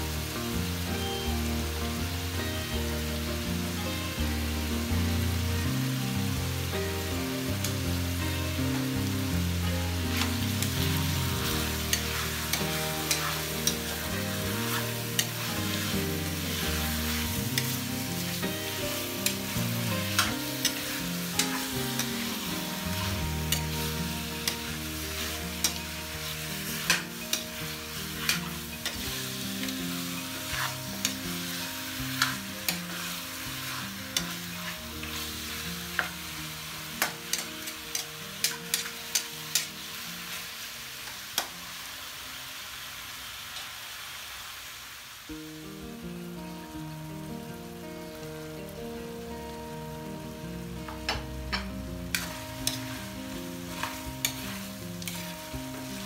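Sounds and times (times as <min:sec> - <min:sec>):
soft background music: 0:00.0 - 0:42.6, 0:45.3 - 0:56.0
chicken sizzling in hot oil: 0:00.0 - 0:56.0
metal spatula scraping wok: 0:10.0 - 0:36.1, 0:51.5 - 0:56.0.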